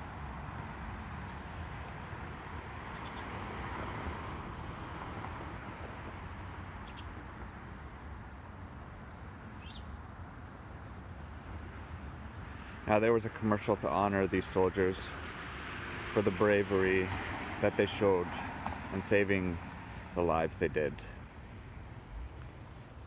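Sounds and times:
vehicle passing: 0:00.0 - 0:09.2, 0:13.9 - 0:22.3
street traffic noise: 0:00.0 - 0:23.0.

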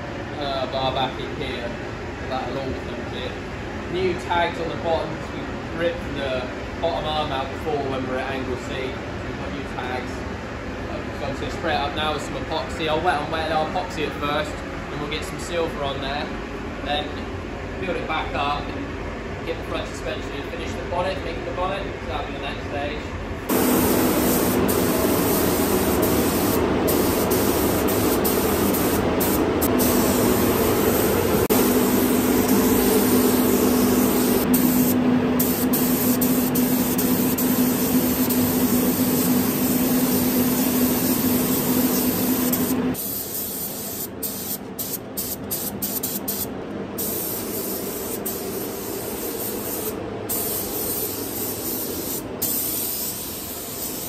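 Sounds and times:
spray gun hissing: 0:23.5 - 0:54.0.

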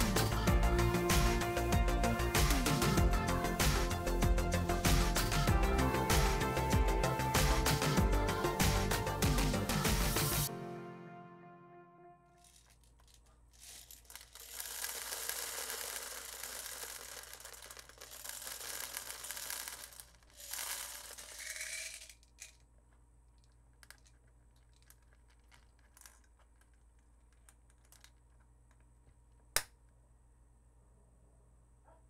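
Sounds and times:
small clicks: 0:12.4 - 0:30.0
plastic pellets pouring into hopper: 0:13.6 - 0:22.5.

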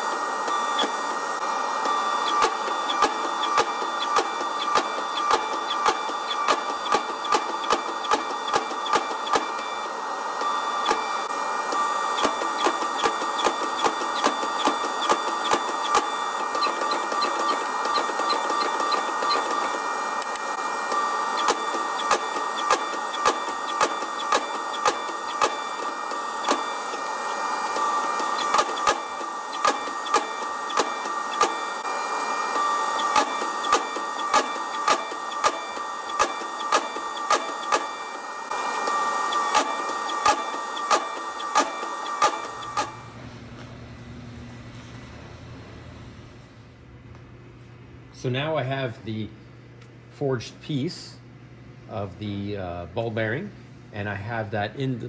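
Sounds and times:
power hammer blows: 0:00.0 - 0:43.2
machine hum: 0:00.0 - 0:55.0.

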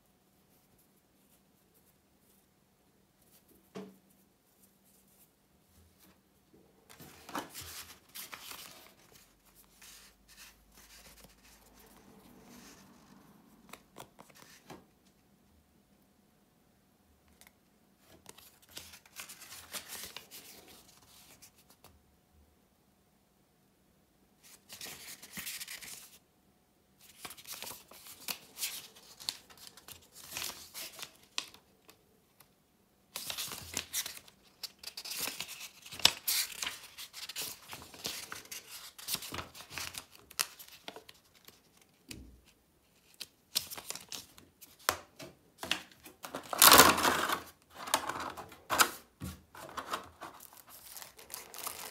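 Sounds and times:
paper rustling and crinkling: 0:06.9 - 0:12.8, 0:18.0 - 0:21.8, 0:27.0 - 0:32.5, 0:33.2 - 0:51.9.

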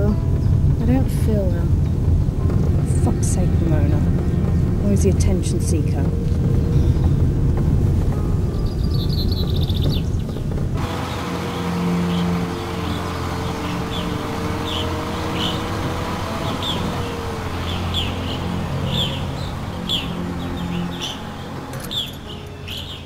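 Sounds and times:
low steady drone: 0:00.0 - 0:09.8, 0:10.5 - 0:23.0
small birds chirping: 0:08.4 - 0:23.0.

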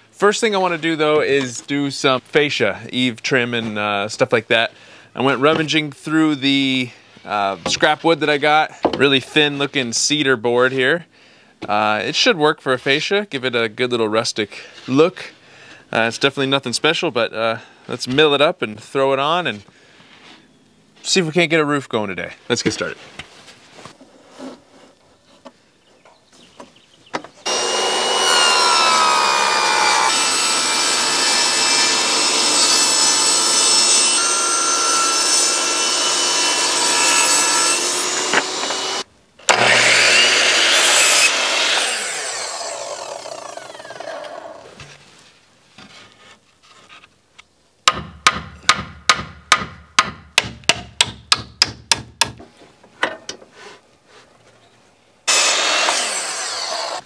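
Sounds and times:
miter saw whining: 0:27.4 - 0:44.7, 0:55.3 - 0:57.0
table saw whine: 0:27.4 - 0:44.7, 0:55.3 - 0:57.0.

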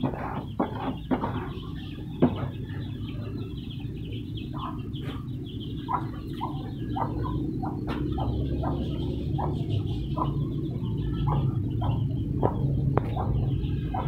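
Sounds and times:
knocks on wooden cage: 0:00.0 - 0:01.6, 0:02.2 - 0:02.6
birds calling: 0:00.0 - 0:14.0.

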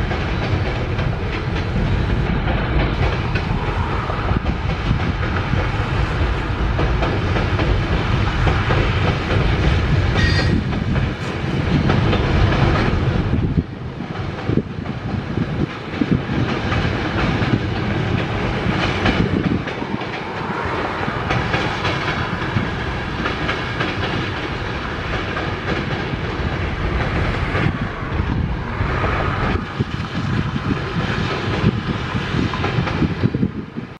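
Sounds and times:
train wheels clickety-clack on rails: 0:00.0 - 0:33.9.

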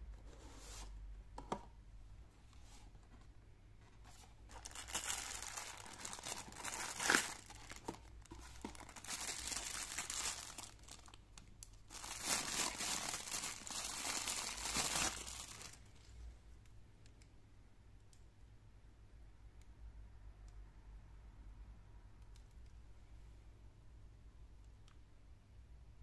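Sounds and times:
plastic bag crinkling: 0:04.5 - 0:11.2, 0:11.9 - 0:15.9.

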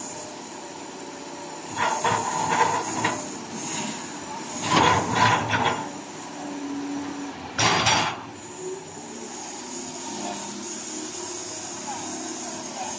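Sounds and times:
excavator diesel engine: 0:00.0 - 0:12.9
excavator mechanical noise: 0:00.0 - 0:12.9.

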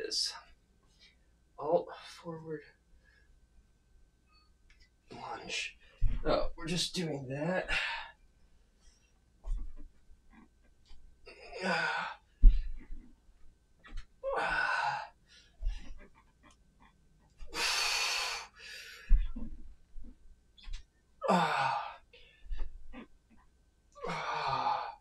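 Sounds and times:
foot landing thud: 0:06.0 - 0:06.6, 0:09.4 - 0:10.0, 0:12.4 - 0:14.6, 0:15.6 - 0:16.2, 0:19.0 - 0:20.8
man breathing heavily: 0:11.3 - 0:13.1, 0:17.4 - 0:20.1.

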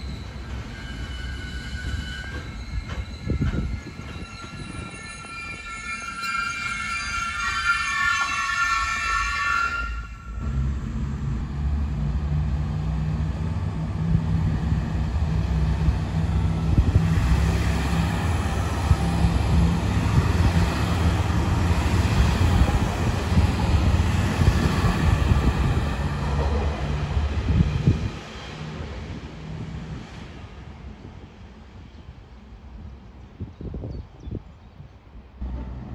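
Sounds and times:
high wheel squeal: 0:00.0 - 0:10.4
diesel train passing: 0:00.0 - 0:33.5, 0:35.1 - 0:35.9.

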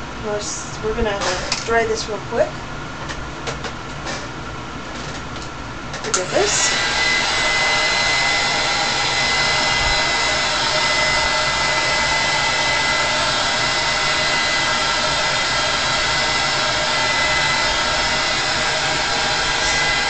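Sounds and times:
hair dryer running: 0:06.0 - 0:20.0.

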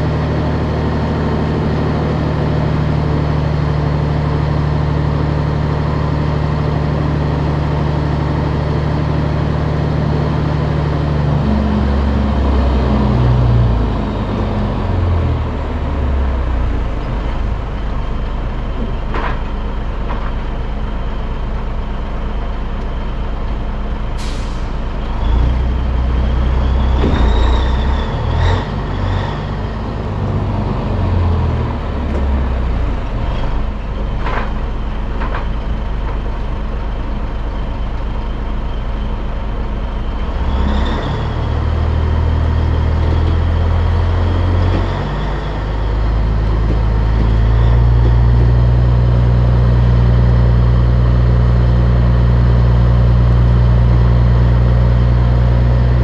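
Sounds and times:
diesel truck engine running: 0:00.0 - 0:56.0
brief air hiss: 0:24.2 - 0:24.7
clunks from truck rig: 0:26.7 - 0:29.6.

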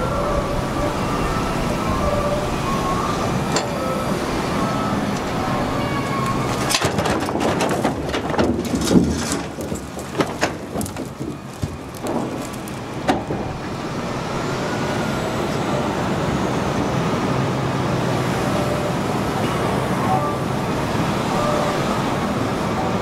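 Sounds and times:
log loader engine and hydraulics: 0:00.0 - 0:23.0
logs knocking: 0:06.2 - 0:13.7.

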